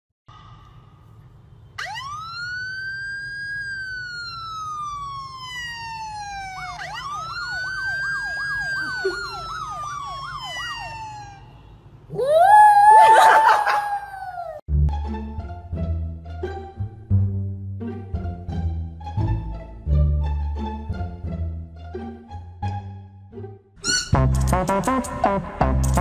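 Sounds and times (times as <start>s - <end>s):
rough wailing siren tone: 1.8s - 14.6s
siren wailing: 1.8s - 14.6s
siren yelp tone: 1.8s - 14.6s.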